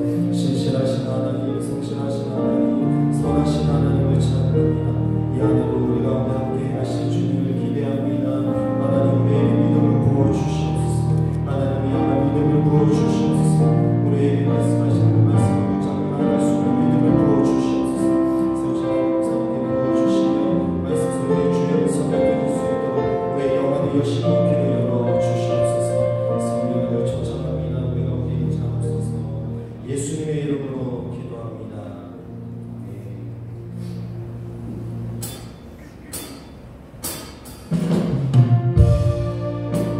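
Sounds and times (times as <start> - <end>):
synthesizer worship chords: 0.0 - 36.1, 38.3 - 39.9
low synth bass line: 38.8 - 39.9.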